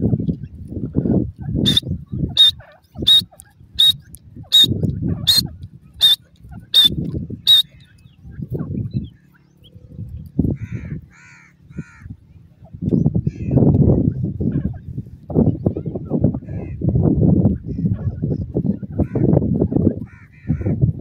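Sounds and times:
francolin short sharp calls: 1.7s - 8.0s.

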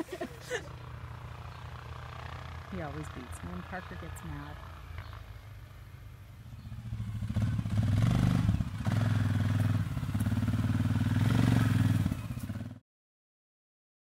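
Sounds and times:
engine running: 0.0s - 12.8s.

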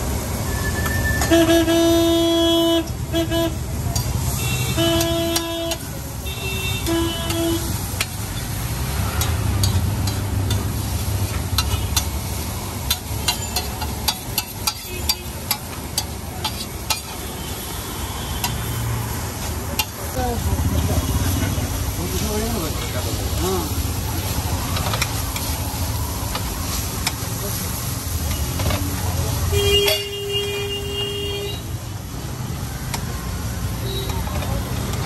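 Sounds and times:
street traffic noise: 0.0s - 35.0s
vehicle horns honking: 0.9s - 7.8s, 29.5s - 31.8s
metal spatula scraping on griddle: 12.8s - 17.6s.

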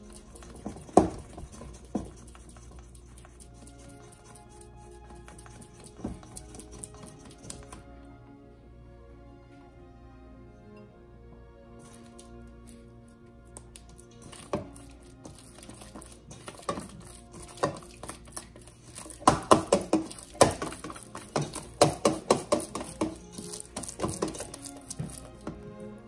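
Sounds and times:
dough slapping in a metal bowl: 0.0s - 7.8s, 13.7s - 25.8s
soft background music: 0.0s - 26.0s.

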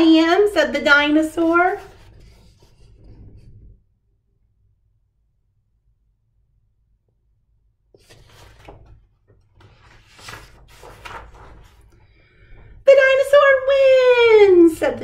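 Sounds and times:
book pages turning: 1.3s - 3.7s, 8.0s - 12.7s.

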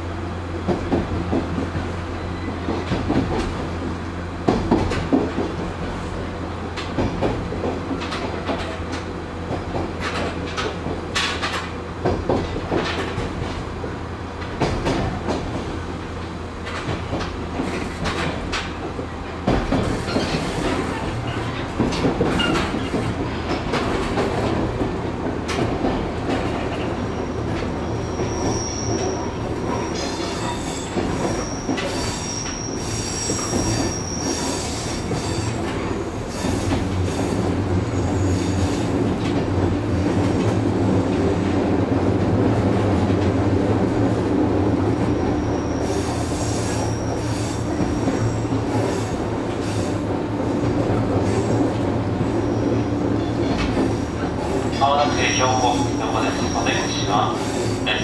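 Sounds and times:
train wheels rumbling on rails: 0.0s - 58.0s
high-pitched wheel squeal: 27.2s - 35.7s, 45.2s - 49.1s, 55.1s - 57.8s.

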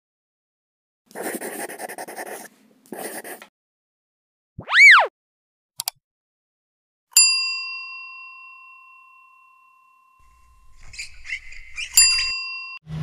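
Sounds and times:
pitched swoop: 4.6s - 5.1s.

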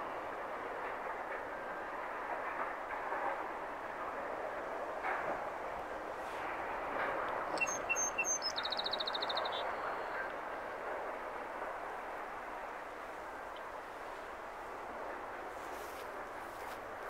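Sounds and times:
sea: 0.0s - 17.0s
wind: 0.0s - 17.0s
bird chirping and trilling: 7.6s - 9.9s.

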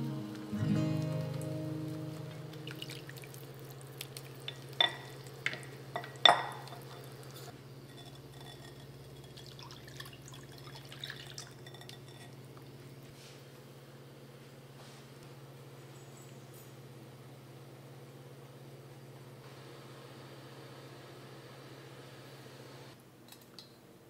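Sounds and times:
milk pouring into a pan: 2.6s - 5.4s, 9.3s - 12.1s
glass clinking: 4.5s - 7.2s, 7.9s - 12.4s.

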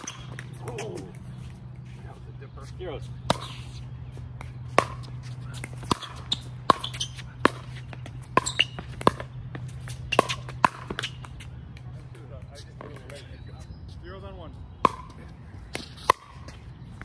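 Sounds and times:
ball bouncing on court: 0.0s - 1.2s, 4.4s - 11.9s, 14.8s - 17.0s.

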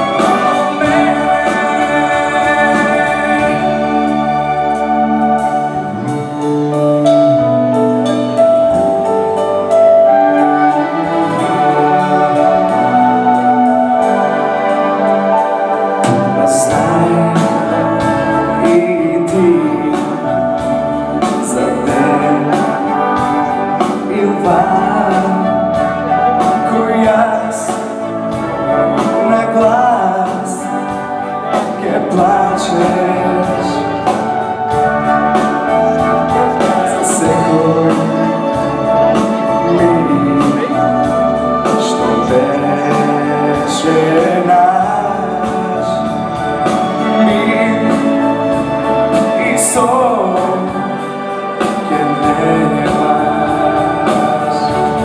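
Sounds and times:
man singing pop ballad: 0.0s - 4.2s, 16.1s - 23.2s, 23.8s - 25.8s, 26.4s - 28.0s, 29.0s - 34.1s, 36.3s - 38.5s, 39.1s - 48.4s, 49.1s - 51.0s, 51.6s - 55.0s
orchestra with brass: 0.0s - 55.0s
steady drum beat: 0.0s - 55.0s.

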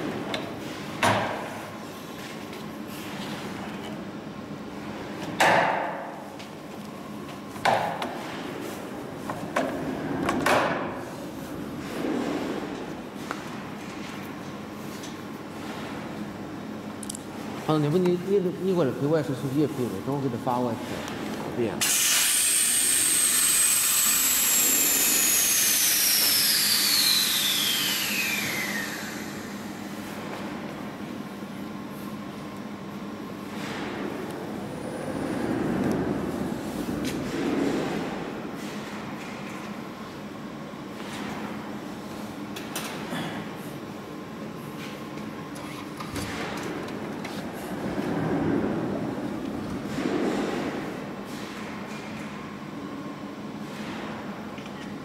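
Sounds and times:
steady low hum: 0.0s - 55.0s
compressed air hissing: 21.8s - 29.5s.

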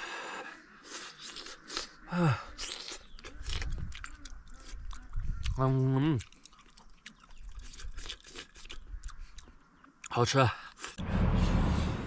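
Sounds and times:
breathing: 0.0s - 1.1s, 11.0s - 12.0s
person chewing food: 0.8s - 11.0s.

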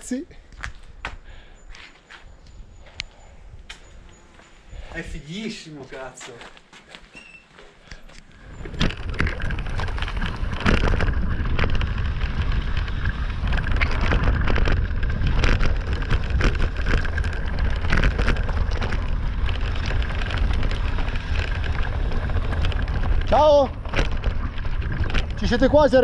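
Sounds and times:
bike tyres rolling over gravel: 8.2s - 26.0s
wind rumble on microphone: 8.3s - 26.0s
bike rattling knocks: 8.5s - 26.0s.

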